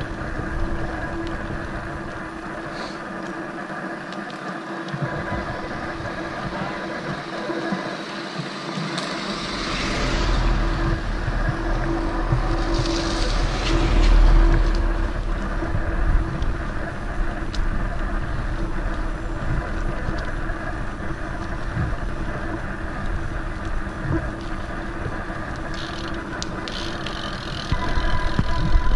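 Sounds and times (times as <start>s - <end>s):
bike tyres on wet asphalt: 0.0s - 28.9s
wind rushing over microphone: 5.0s - 26.6s
heavy low rumble: 5.0s - 28.9s.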